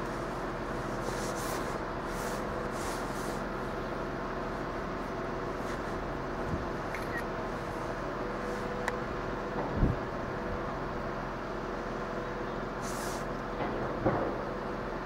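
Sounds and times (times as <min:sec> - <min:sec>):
heavy machinery engines droning: 0:00.0 - 0:15.0.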